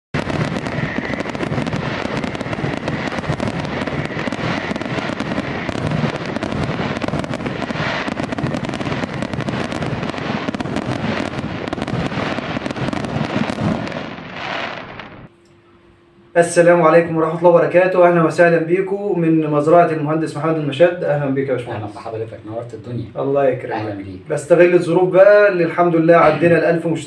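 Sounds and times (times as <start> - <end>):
fireworks bursting and crackling: 0.1 - 15.3, 25.2 - 26.7.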